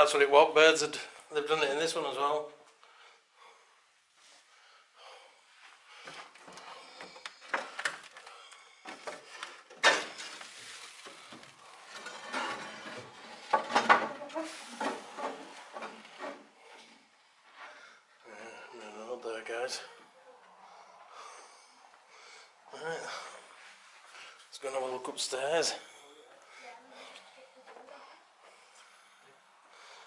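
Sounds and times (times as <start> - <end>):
scraping: 6.6 - 16.8.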